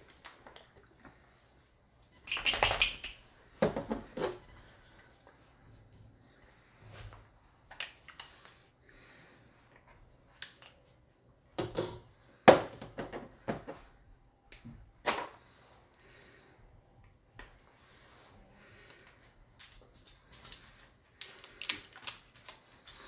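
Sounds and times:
plastic seal clicks and crinkles: 18.8 - 23.0.

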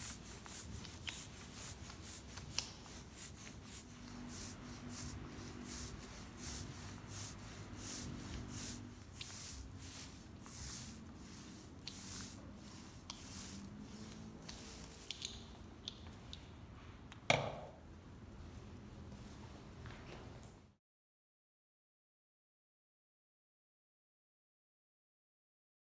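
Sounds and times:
roller swishing over wet epoxy: 0.0 - 15.5.

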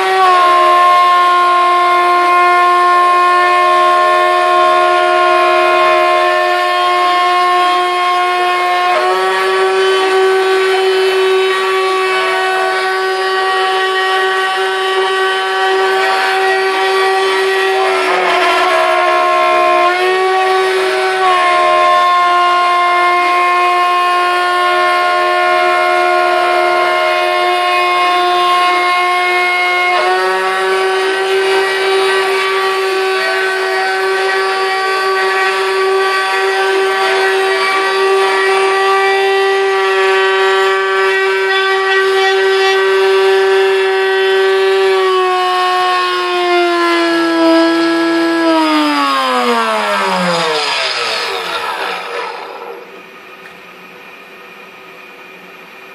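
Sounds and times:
router spindle whining: 14.9 - 21.3, 49.3 - 53.6.

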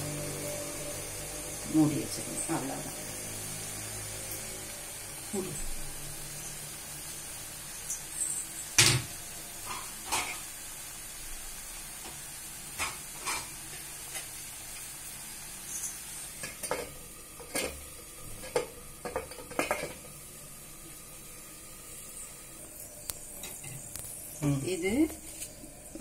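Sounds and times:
vegetables sizzling in a pot: 0.0 - 26.0
knocks and clinks against pot: 18.4 - 20.0.

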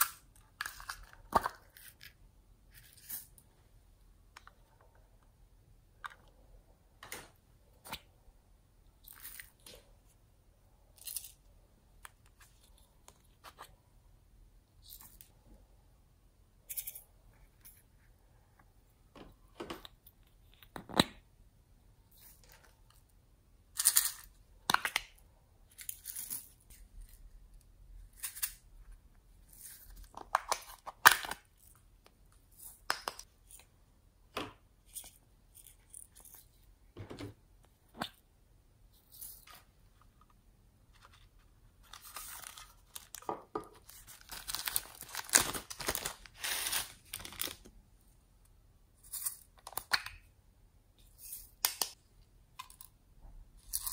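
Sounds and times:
plastic bag crinkling: 43.8 - 47.7.

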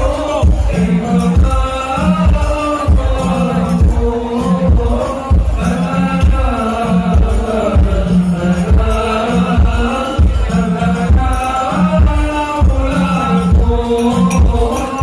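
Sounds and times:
chanted vocals: 0.0 - 15.0
deep drum beat: 0.0 - 15.0.

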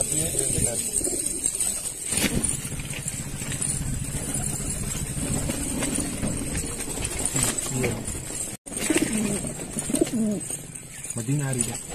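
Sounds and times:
motor running with low rumble: 2.1 - 7.4.

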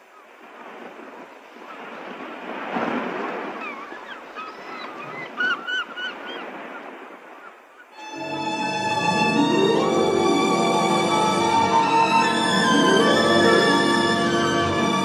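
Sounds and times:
ocean surf washing in: 0.4 - 4.1, 8.0 - 15.0.

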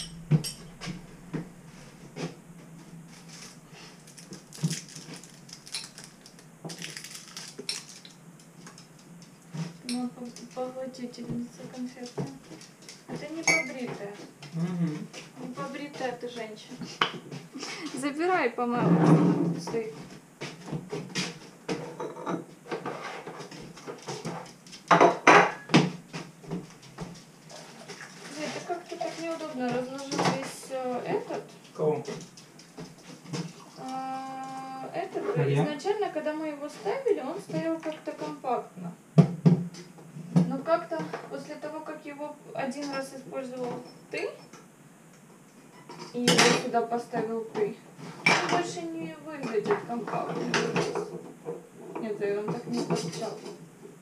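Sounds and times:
household objects knocking and clinking: 0.0 - 0.8
rustling of things handled: 0.4 - 18.2, 19.6 - 24.9, 26.0 - 38.4, 47.2 - 53.7
objects clattering: 3.1 - 16.1.

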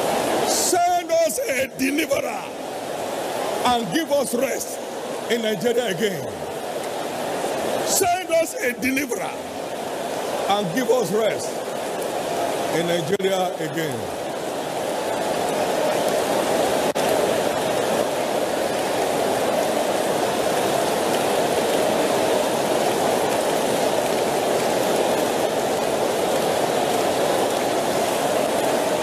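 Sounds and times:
congregation praying aloud: 0.5 - 2.6, 3.6 - 6.4, 7.8 - 9.4, 10.5 - 11.5.

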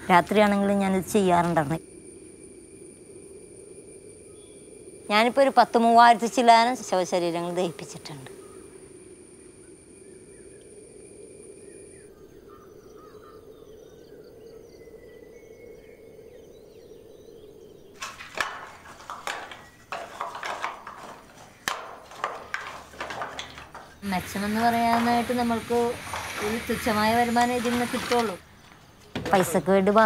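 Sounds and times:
faint bird chirps: 7.7 - 18.0
coconut shells knocking and clattering: 18.0 - 28.4.

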